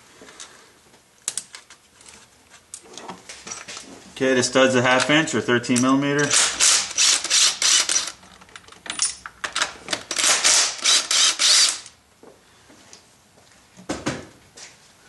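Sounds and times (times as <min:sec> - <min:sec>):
power wrench rapid clicking: 0:06.2 - 0:08.2, 0:09.6 - 0:12.0.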